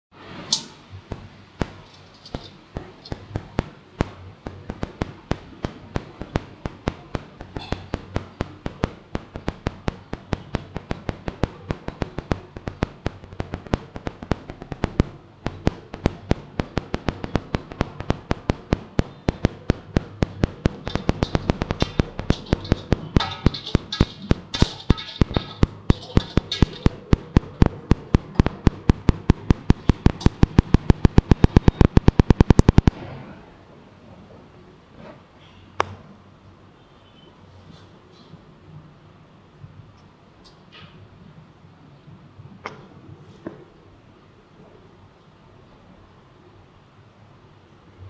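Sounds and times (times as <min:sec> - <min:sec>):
rapid sharp clicking and tapping: 0:00.5 - 0:33.0.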